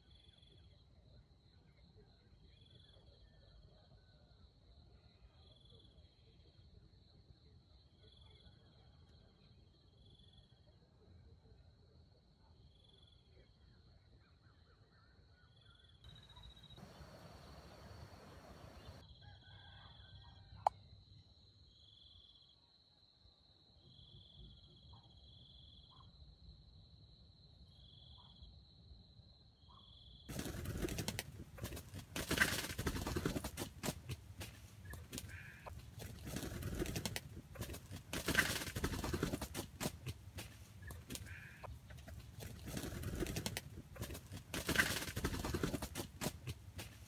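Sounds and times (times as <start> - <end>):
high insect tone with chirps: 15.4 - 19.2, 20.8 - 46.2
loud rustling and clattering: 30.3 - 47.0.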